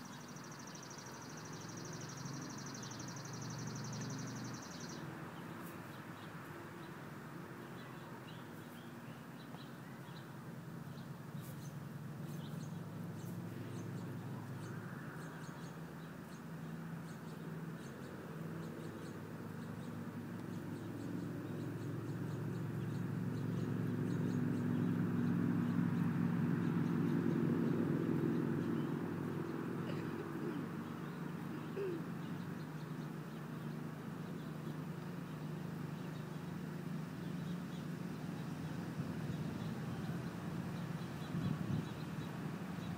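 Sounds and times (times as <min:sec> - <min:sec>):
faint bird chirps: 0:00.0 - 0:06.3
low engine hum: 0:00.0 - 0:42.9.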